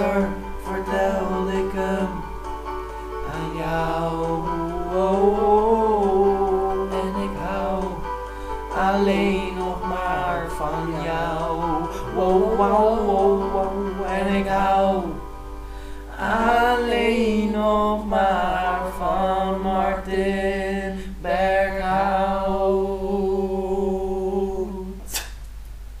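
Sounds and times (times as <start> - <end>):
young men singing: 0.0 - 2.3, 3.2 - 15.3, 16.1 - 25.1
sharp click: 25.1 - 25.6.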